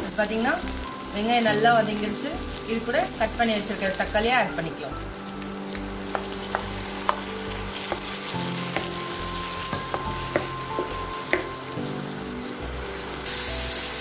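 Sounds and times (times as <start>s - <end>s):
onions and tomatoes sizzling in oil: 0.0s - 14.0s.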